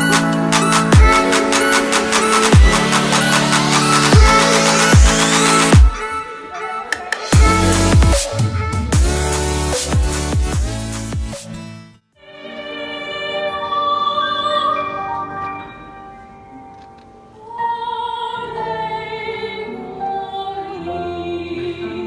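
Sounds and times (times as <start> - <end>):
woman singing operatically: 12.3 - 15.2, 17.4 - 22.0
grand piano accompaniment: 12.6 - 22.0.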